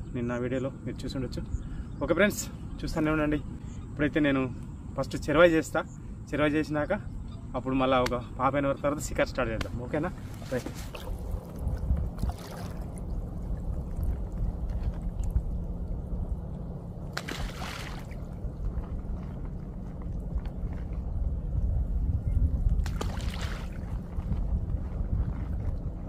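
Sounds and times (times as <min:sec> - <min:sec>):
steady low rumble: 0:00.0 - 0:26.0
ground bait splashing into water: 0:12.2 - 0:13.1, 0:17.1 - 0:18.4, 0:22.8 - 0:23.8.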